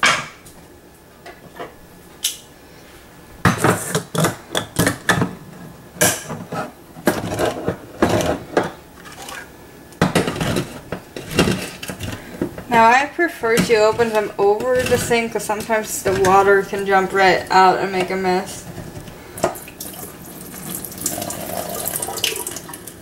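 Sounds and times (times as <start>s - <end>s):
can opener clicking and scraping: 13.4s - 18.2s.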